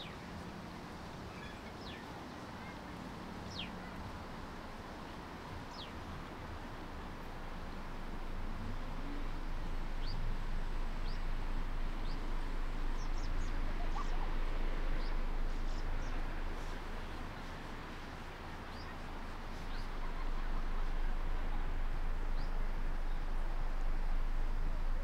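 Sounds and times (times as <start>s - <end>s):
low hum: 5.9s - 25.0s.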